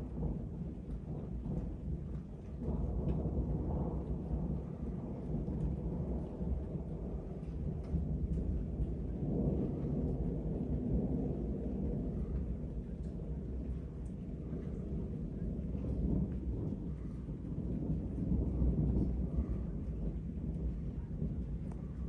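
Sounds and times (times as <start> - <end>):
thunder rumbling: 0.0 - 22.0.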